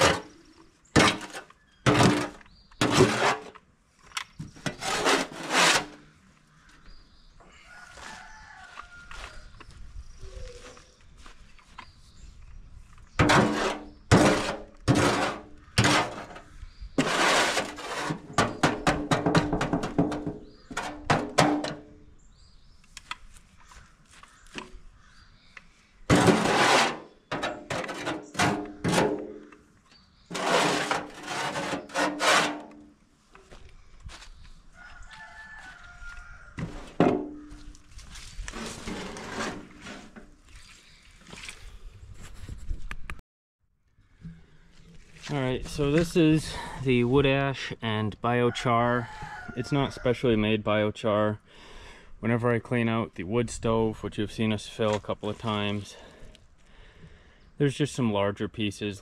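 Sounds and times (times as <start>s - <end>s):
scraping in a metal tub: 0.0s - 0.4s, 1.0s - 3.6s, 4.6s - 6.1s, 13.2s - 21.9s, 26.1s - 29.5s, 30.3s - 32.9s, 38.4s - 40.4s.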